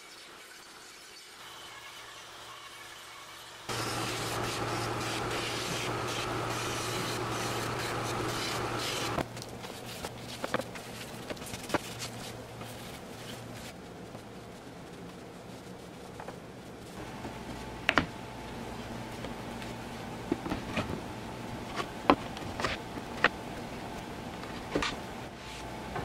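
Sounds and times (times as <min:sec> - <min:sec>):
steady hum: 0:03.7 - 0:09.3, 0:17.0 - 0:26.0.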